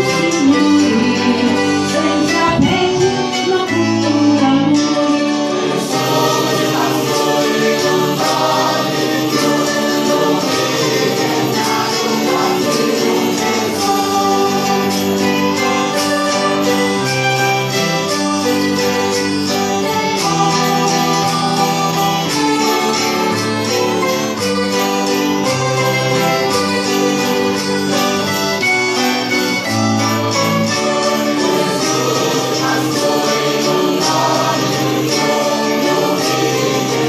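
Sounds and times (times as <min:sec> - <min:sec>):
mixed choir singing: 0:00.0 - 0:17.4, 0:18.1 - 0:28.3, 0:30.2 - 0:37.0
keyboard: 0:00.0 - 0:37.0
plucked string instruments: 0:00.0 - 0:37.0.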